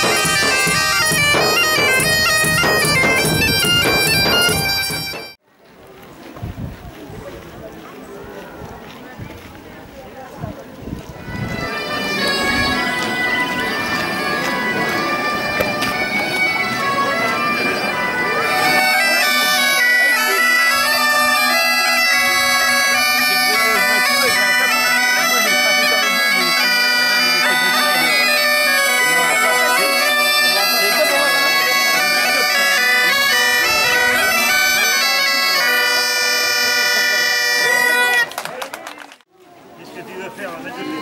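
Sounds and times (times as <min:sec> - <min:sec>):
bagpipes playing a tune: 0:00.0 - 0:05.4, 0:11.2 - 0:38.4, 0:40.6 - 0:41.0
low bagpipe drone: 0:00.0 - 0:05.4, 0:11.2 - 0:38.4.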